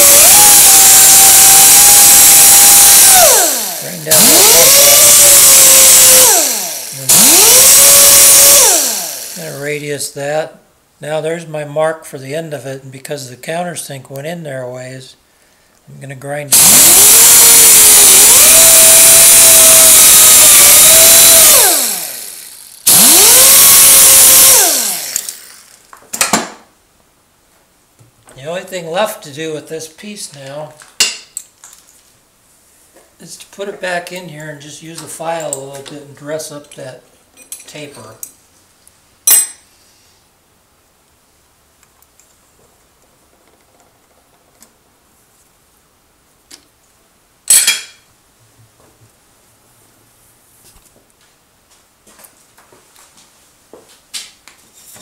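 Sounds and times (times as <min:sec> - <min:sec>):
die grinder whining: 0:00.0 - 0:09.6, 0:16.5 - 0:25.9.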